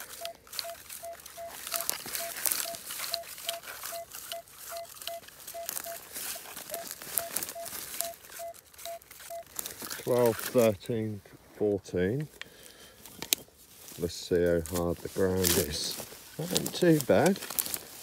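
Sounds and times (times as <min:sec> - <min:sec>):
metal detector beeping: 0:00.0 - 0:10.3
dry stubble crackling: 0:00.0 - 0:18.0.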